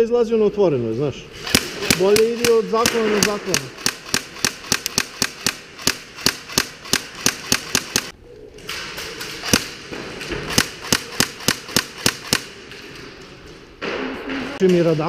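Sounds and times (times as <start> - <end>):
airsoft gun shots: 1.4 - 8.1, 10.5 - 12.6.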